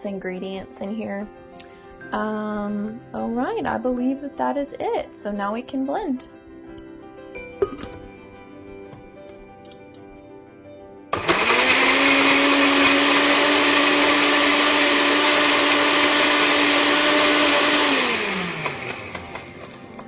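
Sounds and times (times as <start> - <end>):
countertop blender running: 11.1 - 20.0.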